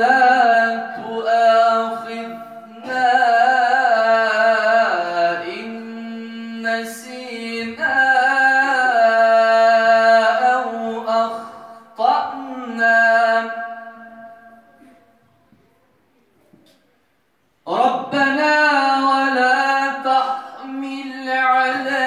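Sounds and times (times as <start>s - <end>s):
man chanting recitation: 0.0s - 14.8s, 17.6s - 22.0s.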